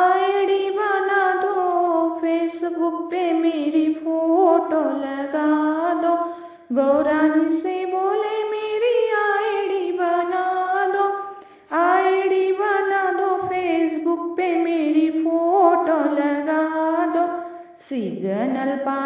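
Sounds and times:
woman singing devotional song: 0.0s - 19.0s.

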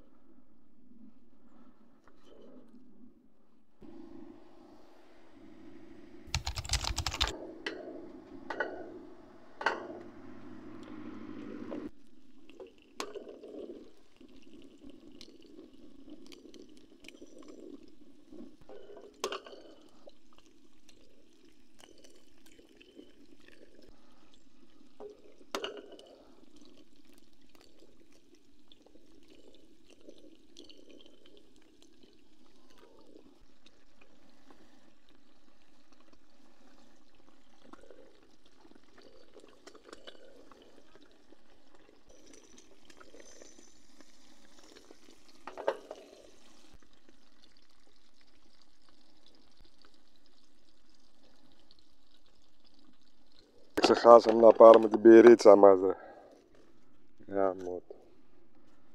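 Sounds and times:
water gurgling and sloshing: 0.0s - 6.3s, 7.3s - 58.9s
sharp clicks: 6.3s - 7.4s.

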